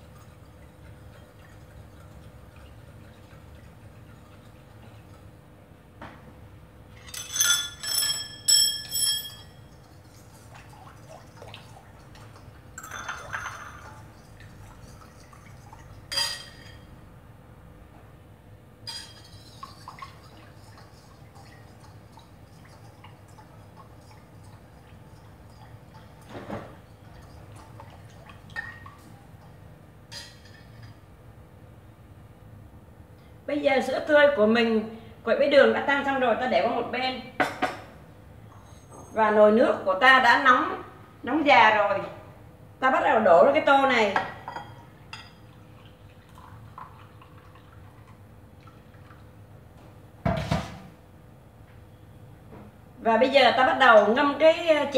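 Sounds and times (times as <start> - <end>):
metal spoon clinking in bowl: 7.0 - 9.9, 12.8 - 13.8, 16.1 - 16.9, 18.9 - 19.7
whisk and spoon clinking bowl: 7.0 - 11.2, 18.9 - 26.2.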